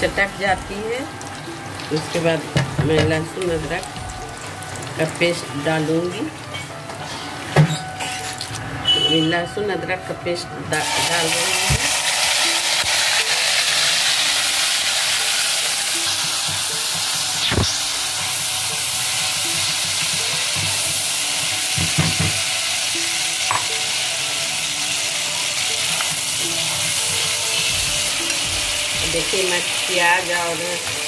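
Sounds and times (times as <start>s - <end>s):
paste sizzling in hot oil: 10.8s - 31.0s.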